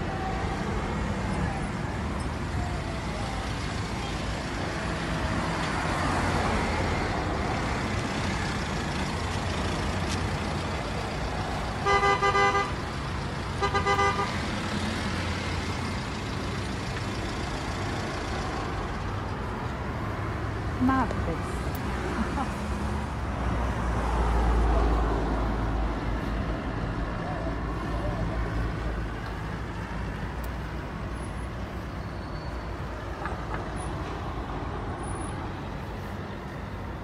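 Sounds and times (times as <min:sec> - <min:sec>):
traffic rumble: 0:00.0 - 0:37.0
car horn blasts: 0:11.8 - 0:12.8, 0:13.6 - 0:14.4.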